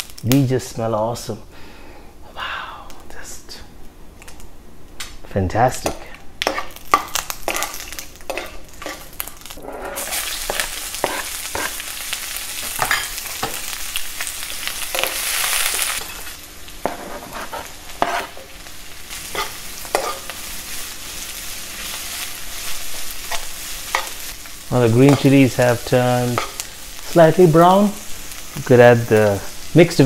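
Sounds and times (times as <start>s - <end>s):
onions sizzling in hot oil: 0.0s - 0.3s, 6.4s - 30.0s
metal spoon scraping a pan: 6.5s - 9.0s, 16.8s - 18.5s, 19.3s - 20.3s.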